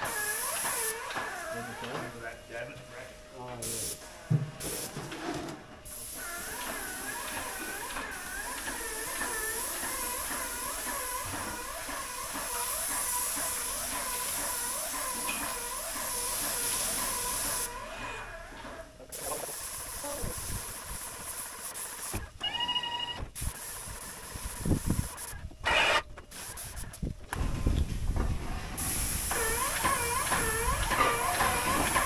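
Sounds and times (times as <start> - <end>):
paint spray gun hissing: 0.0 - 1.6, 5.9 - 17.8, 19.1 - 22.4, 23.3 - 27.1, 28.8 - 32.0.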